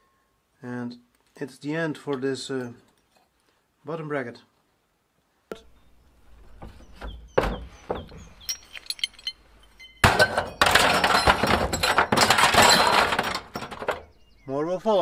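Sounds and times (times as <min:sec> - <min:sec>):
metal parts clattering in bin: 0:07.4 - 0:09.4, 0:10.0 - 0:14.2
light metal clinks: 0:07.9 - 0:13.0.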